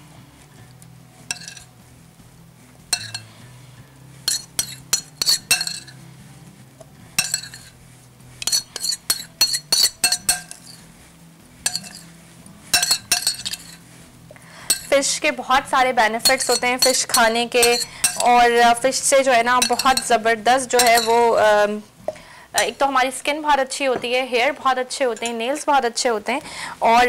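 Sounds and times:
spoon clinking against glass: 1.3s - 1.7s, 3.0s - 3.3s, 4.3s - 6.0s, 7.2s - 7.7s, 8.4s - 10.8s, 11.7s - 12.1s, 12.8s - 13.8s, 14.6s - 14.9s, 16.2s - 18.4s, 19.6s - 21.4s.

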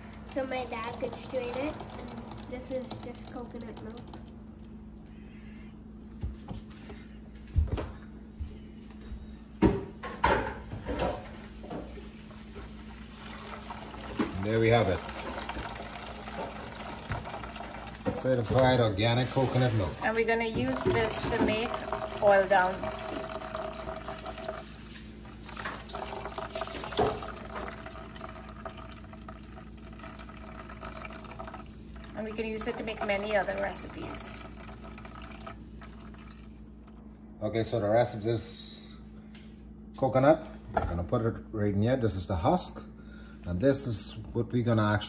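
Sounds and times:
liquid trickling into metal bowl: 0.3s - 4.4s, 12.9s - 37.0s.

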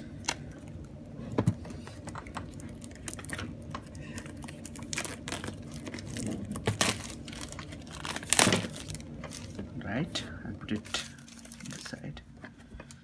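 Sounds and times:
plastic wrap tearing and crinkling: 2.3s - 9.7s, 10.7s - 12.1s.

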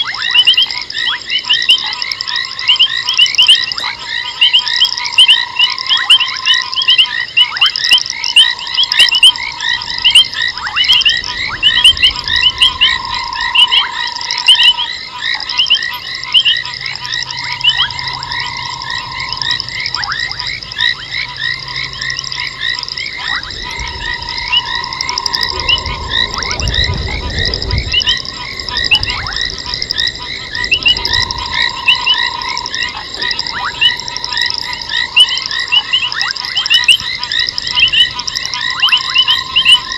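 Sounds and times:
frog trill: 0.0s - 39.9s
frogs chirping: 0.0s - 39.9s
low rumble: 9.4s - 14.9s, 16.6s - 36.6s.

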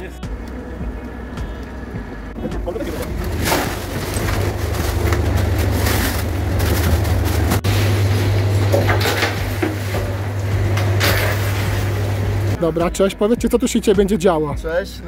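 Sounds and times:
cooling unit humming: 0.0s - 15.0s
ice rustling and knocking: 3.0s - 7.8s.

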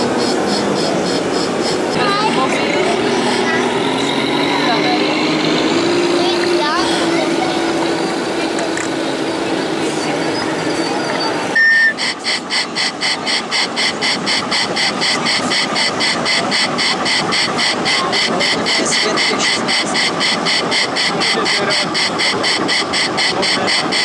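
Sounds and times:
electronic engine hum: 0.0s - 24.0s
rhythmic electronic engine beat: 0.0s - 24.0s
short loud beep: 10.9s - 12.7s.

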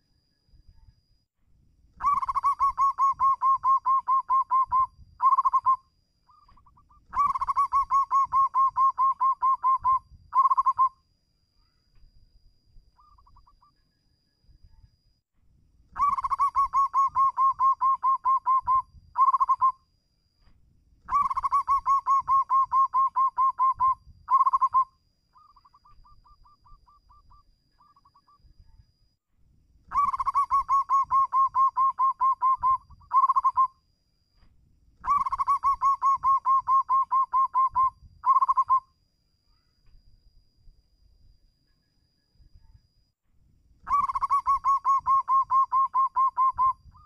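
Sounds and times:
dove cooing: 2.0s - 10.9s, 15.9s - 19.8s, 21.1s - 28.4s, 29.9s - 33.7s, 35.0s - 38.8s, 43.8s - 47.0s.

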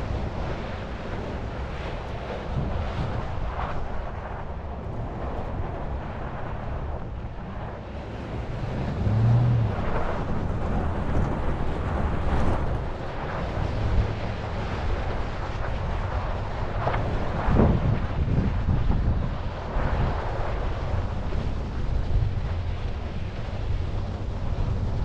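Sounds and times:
wind buffeting microphone: 0.0s - 25.0s
tyre and road rumble: 4.6s - 25.0s
truck engine running: 7.9s - 12.9s.

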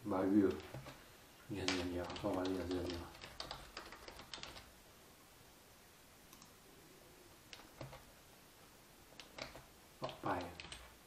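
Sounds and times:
computer keyboard clicks: 1.7s - 4.7s, 7.5s - 8.1s, 9.2s - 11.0s.

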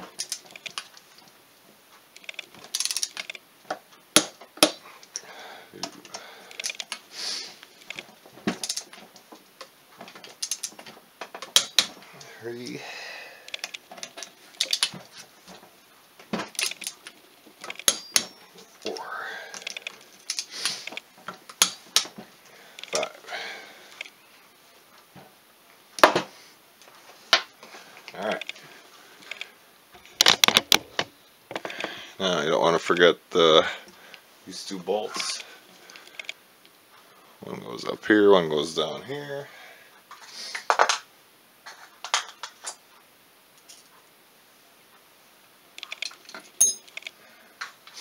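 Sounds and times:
metal tools knocking and clinking: 17.6s - 18.7s, 46.3s - 47.1s.

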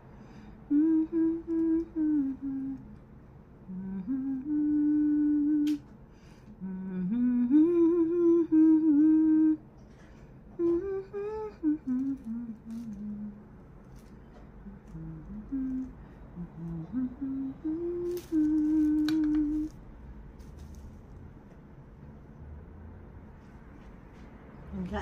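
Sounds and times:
woman humming: 0.7s - 3.0s, 3.6s - 5.8s, 6.6s - 9.6s, 10.5s - 13.5s, 14.6s - 19.8s.

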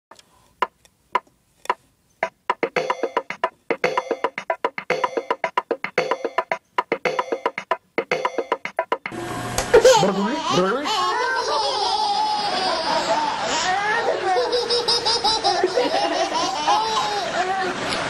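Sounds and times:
ticking percussive beat: 2.2s - 9.2s
keyboard notes: 2.2s - 9.3s.

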